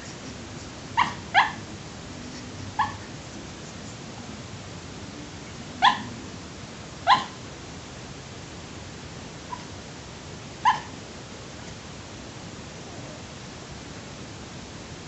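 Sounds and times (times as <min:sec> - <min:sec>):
steady hiss: 0:00.0 - 0:15.0
dog yipping in sleep: 0:01.0 - 0:01.6, 0:02.4 - 0:03.1, 0:05.8 - 0:06.1, 0:07.1 - 0:07.4, 0:09.5 - 0:09.7, 0:10.6 - 0:11.0.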